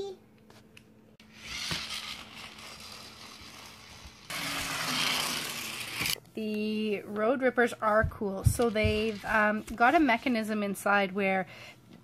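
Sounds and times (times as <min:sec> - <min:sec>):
toy truck motor whirring: 0:01.2 - 0:06.2.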